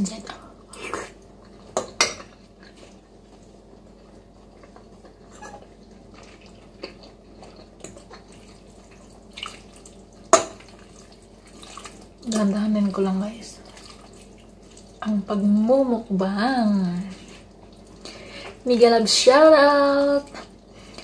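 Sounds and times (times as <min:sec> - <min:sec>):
wet chewing: 0:00.7 - 0:12.6, 0:13.5 - 0:15.0, 0:17.0 - 0:18.6.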